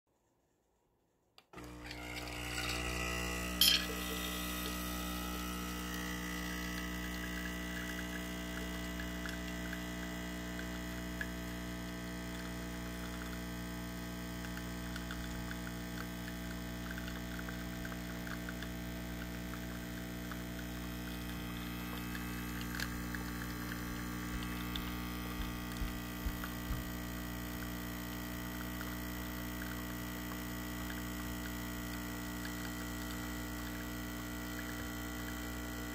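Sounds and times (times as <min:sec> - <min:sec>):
coffee pouring into mug: 0:01.6 - 0:27.8
coffee machine pump humming: 0:01.6 - 0:35.9.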